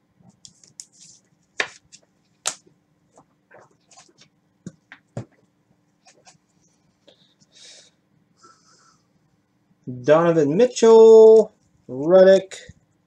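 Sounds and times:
cards clicking and tapping: 1.6s - 2.7s.

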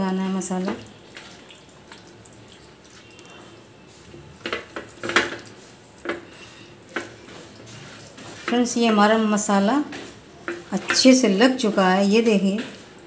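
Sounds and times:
hands massaging wet chicken: 1.1s - 11.2s.

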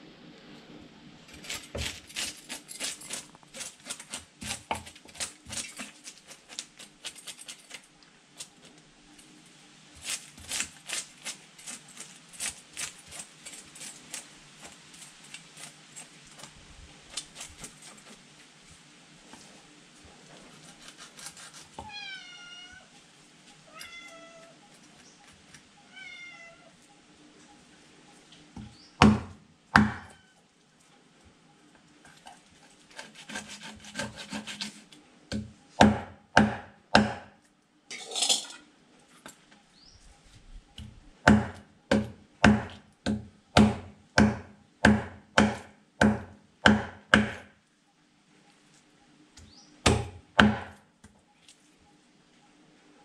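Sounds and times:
knife scraping fish: 1.3s - 8.6s, 10.0s - 16.5s, 17.1s - 18.2s, 20.5s - 21.8s, 32.0s - 35.0s
cat meowing: 21.8s - 22.9s, 23.6s - 24.6s, 25.8s - 26.8s
knife chopping on wooden block: 28.6s - 30.1s, 35.3s - 37.3s, 40.8s - 47.4s, 49.8s - 50.8s.

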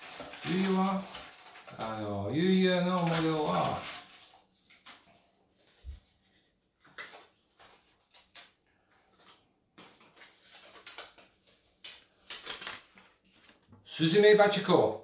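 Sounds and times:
cards rustling and tapping: 0.0s - 6.1s, 6.7s - 13.8s.

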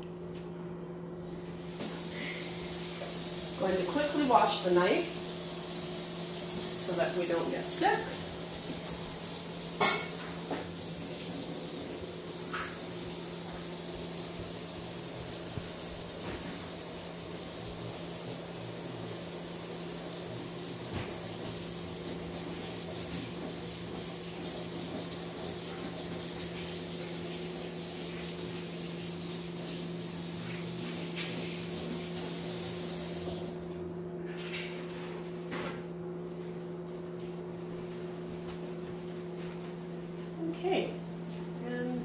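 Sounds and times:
microwave humming: 0.0s - 42.0s
tap water running: 1.6s - 33.8s.

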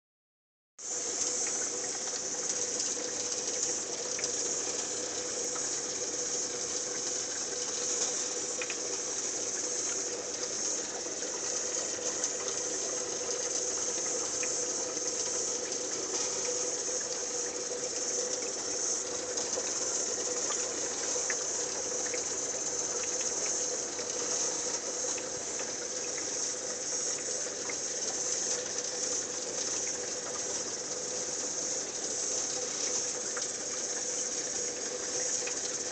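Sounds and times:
steady hum: 0.8s - 35.9s
water and bubbles hissing: 0.9s - 35.9s
faint ticks: 1.2s - 17.2s.

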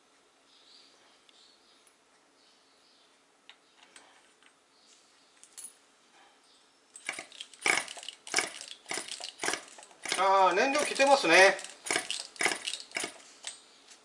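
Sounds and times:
metallic ticks of hand tools: 7.0s - 13.6s
sharp metallic clatter: 7.0s - 13.6s.

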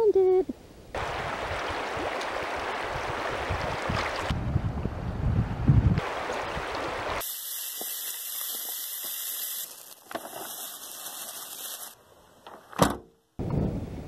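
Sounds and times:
wind on microphone: 0.9s - 7.2s, 13.4s - 14.0s
rushing shallow river water: 1.0s - 4.4s, 6.0s - 7.2s
steady high hiss: 7.2s - 12.4s.

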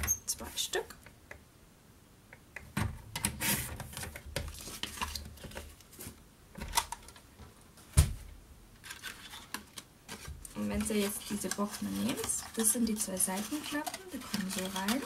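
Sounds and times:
paper pieces handled: 8.8s - 15.0s
trimmer blade scraping through cardstock: 11.1s - 15.0s.

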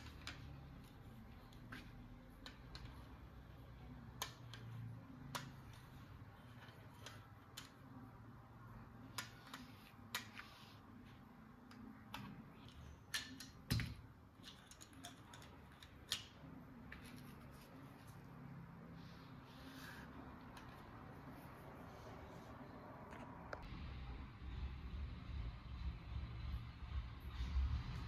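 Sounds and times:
plastic toy clicks and taps: 4.1s - 5.8s.

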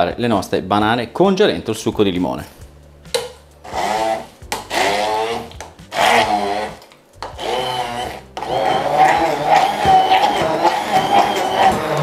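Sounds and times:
stick blender running: 3.6s - 12.0s.

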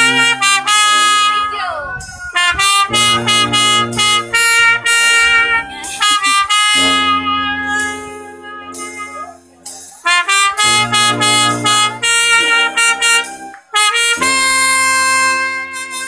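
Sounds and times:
brass band playing chords: 0.0s - 16.0s.

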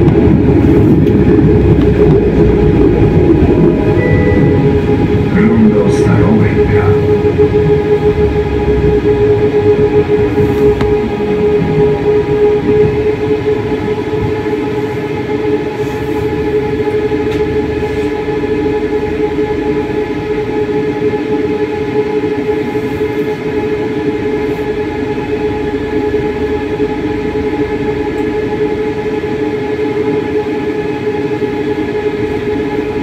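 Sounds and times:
wheel-on-rail rumble: 0.0s - 21.2s
electric drive whine: 0.0s - 33.0s.

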